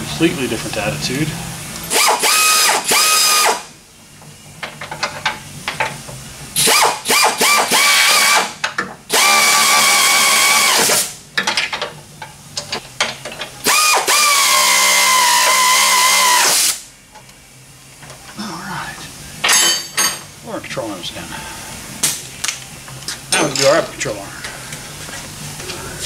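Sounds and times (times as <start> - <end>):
air ratchet whining: 1.9 - 3.7, 6.6 - 11.2, 13.6 - 16.8.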